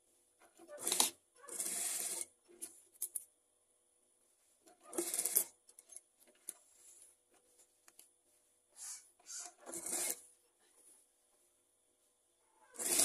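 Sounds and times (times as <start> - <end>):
fabric rustling and rubbing: 6.6 - 11.6.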